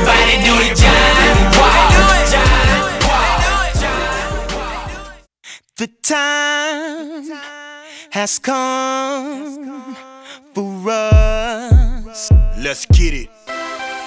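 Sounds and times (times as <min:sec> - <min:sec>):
hip-hop backing music: 0:00.0 - 0:05.2, 0:11.1 - 0:14.0.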